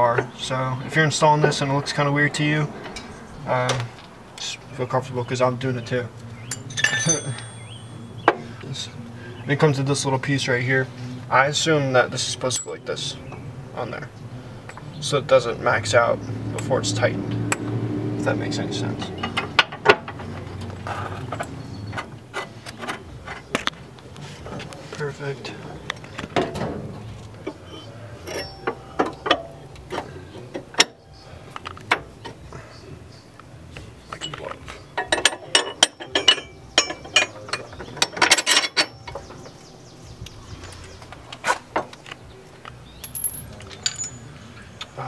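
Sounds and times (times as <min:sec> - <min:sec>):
metal parts clinking and knocking: 0:06.4 - 0:08.1, 0:27.7 - 0:30.0, 0:34.2 - 0:39.3, 0:42.9 - 0:44.4.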